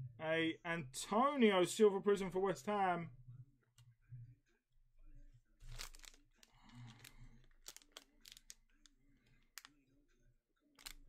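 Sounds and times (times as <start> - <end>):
wrapper crinkling: 5.6 - 8.6, 10.8 - 11.0.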